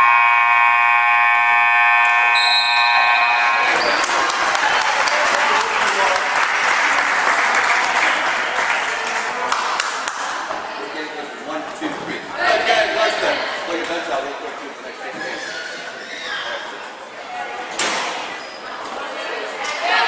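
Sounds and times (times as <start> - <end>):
scoreboard buzzer blast: 0.0 - 3.8
crowd cheering and clapping: 2.9 - 10.5.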